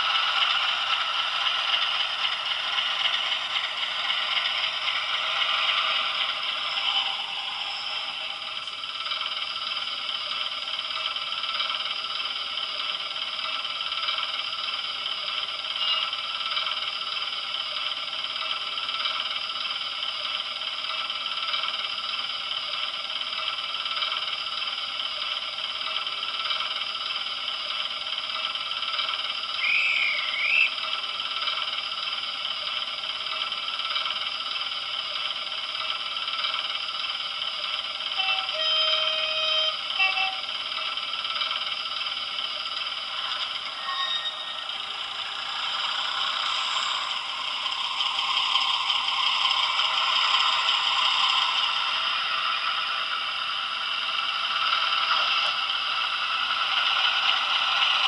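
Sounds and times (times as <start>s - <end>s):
model train diesel engine sound: 0.0s - 58.0s
wavering chirp: 29.6s - 30.8s.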